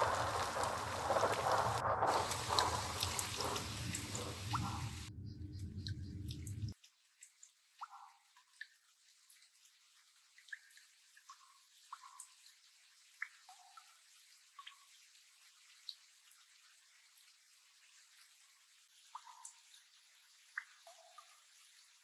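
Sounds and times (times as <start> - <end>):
dense rushing noise: 0.0 - 5.1
water dripping: 0.0 - 22.0.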